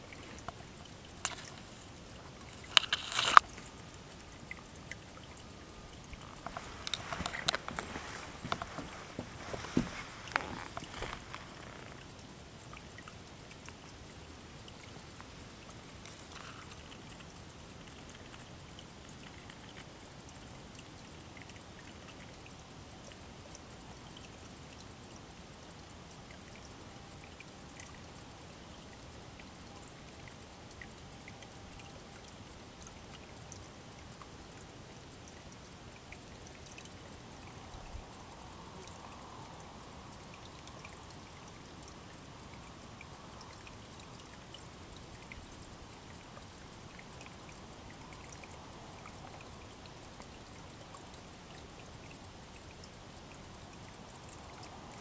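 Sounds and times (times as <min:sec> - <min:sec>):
creek trickling over stones: 0:00.0 - 0:55.0.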